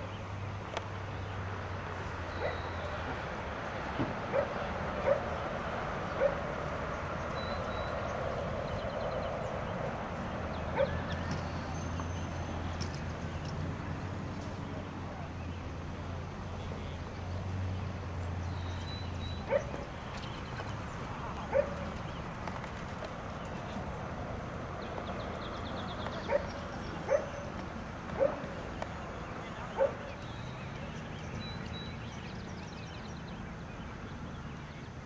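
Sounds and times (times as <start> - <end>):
outdoor background noise: 0.0 - 35.0
dog barking: 2.4 - 2.8, 4.3 - 5.3, 6.2 - 6.4, 10.8 - 11.0, 19.5 - 19.8, 21.5 - 21.8, 26.3 - 26.5, 27.1 - 27.5, 28.2 - 28.4, 29.8 - 30.1.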